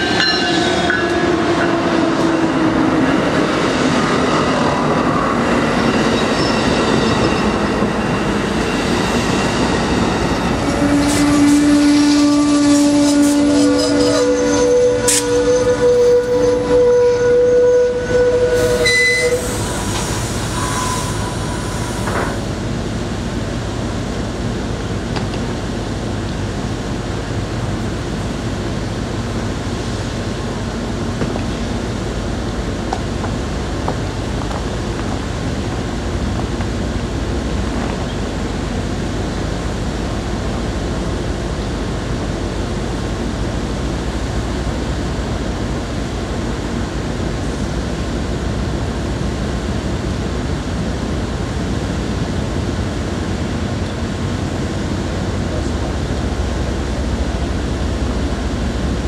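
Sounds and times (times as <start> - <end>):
train engine hum and hiss: 0.0 - 59.0.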